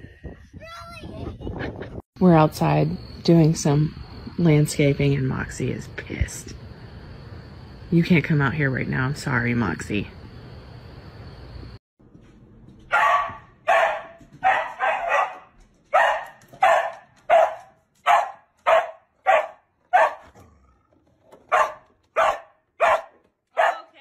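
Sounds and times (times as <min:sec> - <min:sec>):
dog barking: 0:12.9 - 0:20.6, 0:21.5 - 0:24.0.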